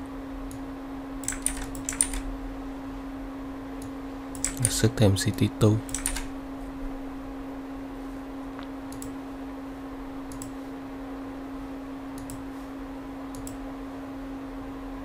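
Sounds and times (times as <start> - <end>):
low electrical hum: 0.0 - 15.0
computer mouse clicks: 1.2 - 2.2, 3.8 - 4.8, 5.9 - 6.3, 8.9 - 9.2, 10.3 - 10.6, 12.2 - 12.5, 13.3 - 13.6.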